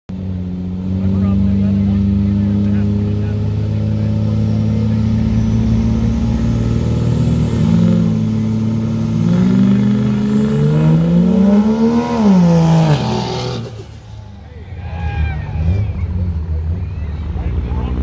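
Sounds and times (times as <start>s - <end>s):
pickup truck engines accelerating: 0.1s - 18.0s.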